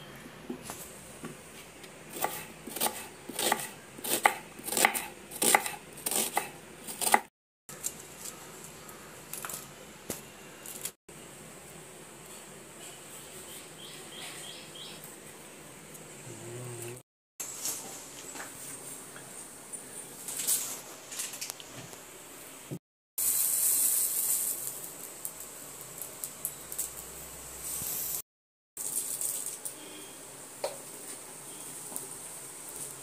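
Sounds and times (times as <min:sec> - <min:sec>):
knife chopping on wooden board: 0:02.1 - 0:07.3.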